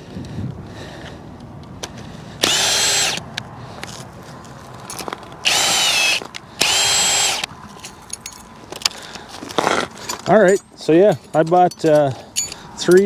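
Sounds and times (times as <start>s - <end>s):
cordless drill motor whining: 2.4s - 3.2s, 5.4s - 7.5s.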